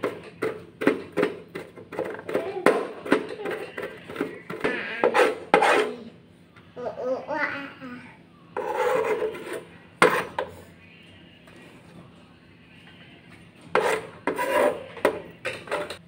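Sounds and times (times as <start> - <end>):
knife scraping garlic on board: 3.4 - 6.0, 8.6 - 10.5, 13.7 - 16.0.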